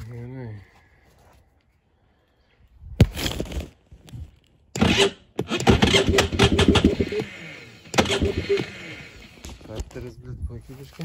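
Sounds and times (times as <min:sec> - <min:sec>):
electric starter cranking engine: 0:04.8 - 0:09.7.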